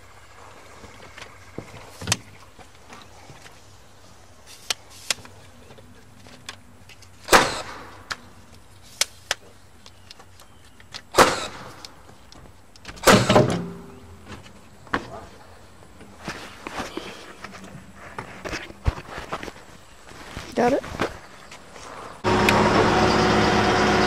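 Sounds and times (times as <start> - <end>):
nail gun firing: 7.3 - 8.1, 11.1 - 11.9, 13.0 - 13.8.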